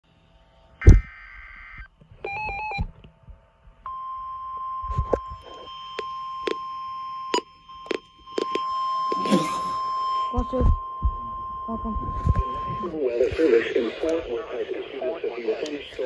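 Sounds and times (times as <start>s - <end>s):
steady warning alarm tone: 3.9s - 14.4s
stepped electronic beep: 7.3s - 13.4s.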